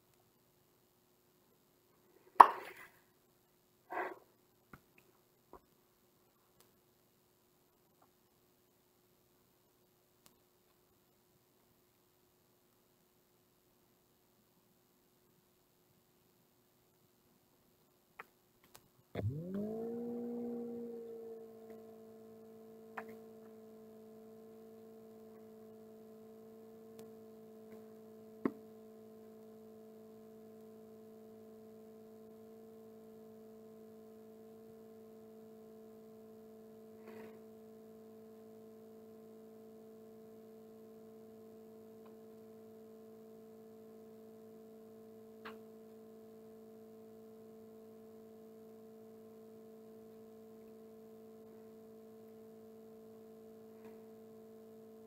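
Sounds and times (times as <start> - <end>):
steady electrical hum: 0.0 - 55.0
faint clicks: 17.8 - 23.6, 45.3 - 46.0.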